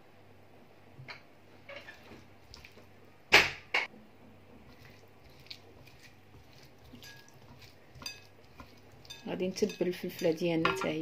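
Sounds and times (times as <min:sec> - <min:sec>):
squishing of coated peppers: 0:01.6 - 0:03.1, 0:04.2 - 0:11.0.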